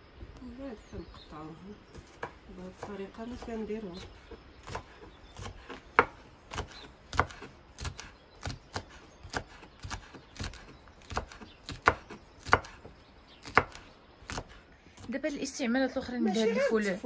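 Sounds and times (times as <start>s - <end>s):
knife chopping on wooden board: 1.9s - 14.6s.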